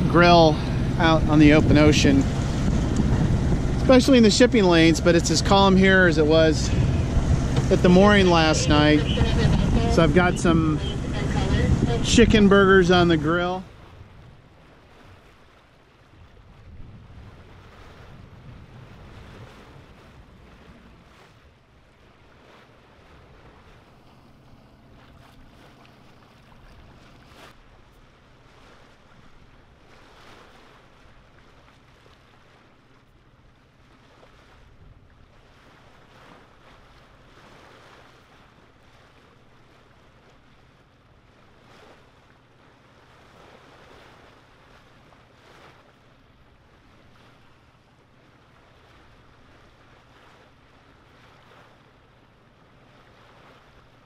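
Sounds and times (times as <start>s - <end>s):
wind buffeting microphone: 0.0s - 15.5s, 16.1s - 27.5s
water washing past hull: 0.0s - 54.0s.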